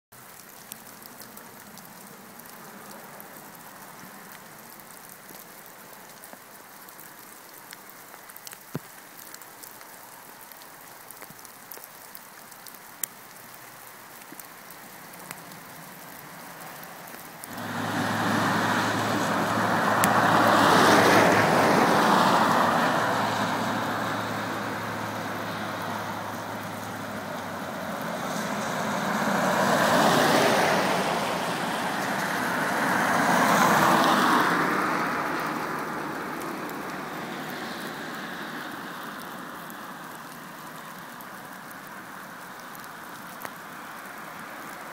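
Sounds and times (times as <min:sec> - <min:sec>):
traffic on a wet road: 0:00.1 - 0:44.9
small ticks: 0:00.2 - 0:17.6, 0:39.2 - 0:43.6
faint outdoor hiss: 0:00.2 - 0:44.9.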